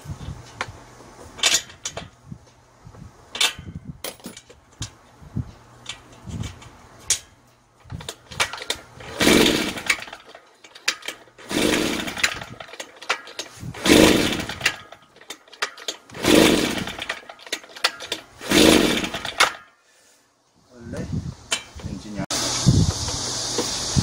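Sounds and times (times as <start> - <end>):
recoil starter pulls: 5.8 - 19.7
engine cranking without starting: 7.8 - 19.7.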